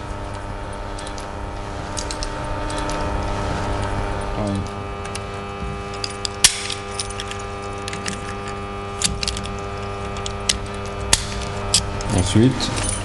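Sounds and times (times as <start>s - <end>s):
steady hum: 0.0s - 13.0s
padlock rattling: 5.9s - 12.1s.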